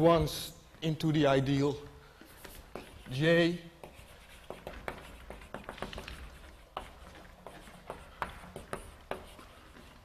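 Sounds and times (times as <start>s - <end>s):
chalk tapping and scratching: 1.5s - 10.0s.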